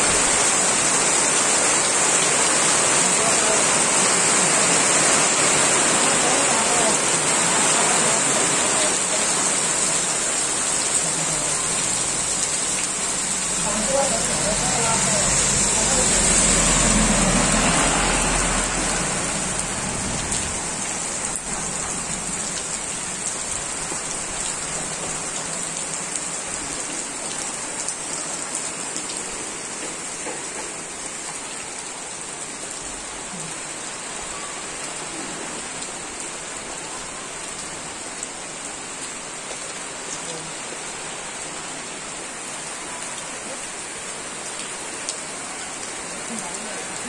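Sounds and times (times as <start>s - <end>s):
heavy rain on wet road: 0.0s - 47.0s
truck passing on wet road: 0.1s - 26.5s.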